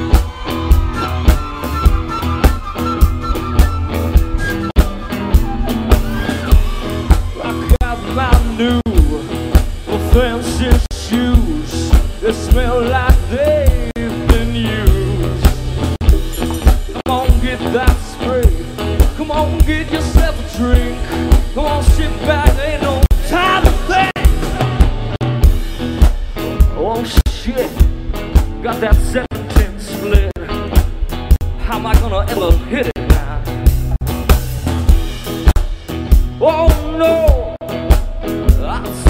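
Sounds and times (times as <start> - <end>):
drums keeping a steady beat: 0.0 - 39.0
guitar: 0.0 - 39.0
man singing into microphone: 7.4 - 15.6, 17.0 - 24.8, 28.6 - 30.6, 36.4 - 39.0.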